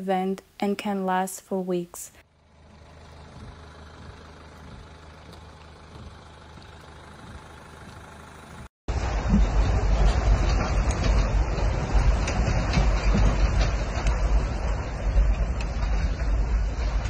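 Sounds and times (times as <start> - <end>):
low background rumble: 2.1 - 17.0.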